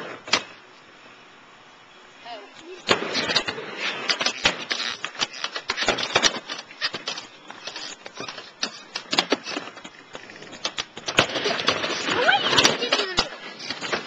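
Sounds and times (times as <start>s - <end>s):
skateboard wheels rattling on wood: 2.9s - 14.0s.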